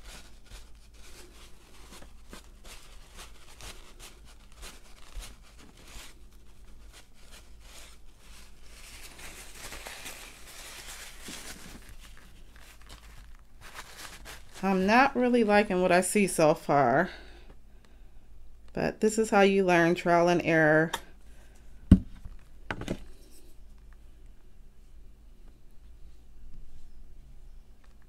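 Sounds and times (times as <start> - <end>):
tissue rubbing on cardstock: 0.0 - 15.2
dry scratchy rustles: 0.0 - 15.8.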